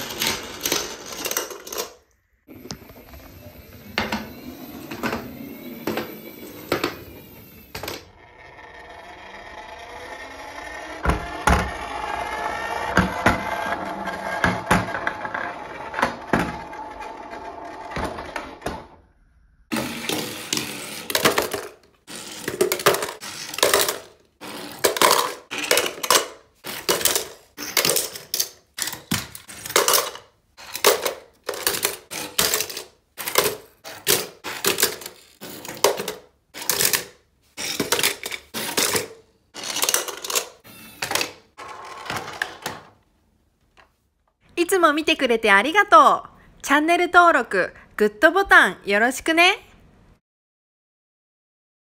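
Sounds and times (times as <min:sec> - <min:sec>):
toy cars clattering into bucket: 0:00.0 - 0:02.1, 0:19.7 - 0:43.0.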